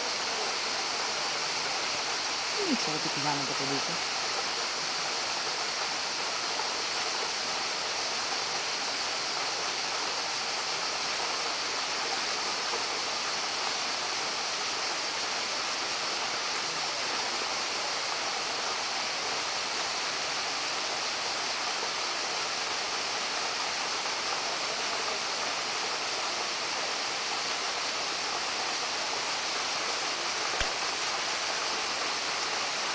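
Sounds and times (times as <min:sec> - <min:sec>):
stream water flowing: 0:00.0 - 0:32.9
sharp click: 0:30.6 - 0:30.8.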